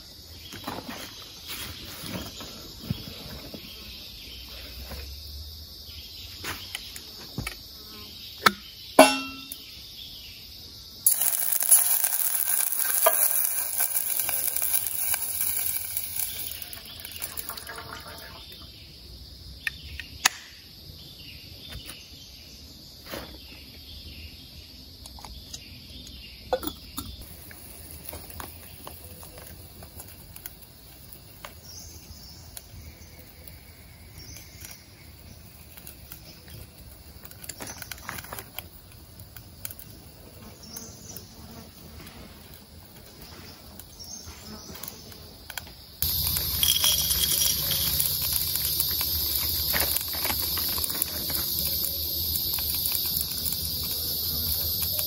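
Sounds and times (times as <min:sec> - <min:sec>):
insects chirring: 0:00.0 - 0:55.0
gas stove hissing: 0:11.0 - 0:18.4, 0:27.2 - 0:34.2, 0:46.0 - 0:55.0
metal clicks and clinks: 0:46.0 - 0:49.3.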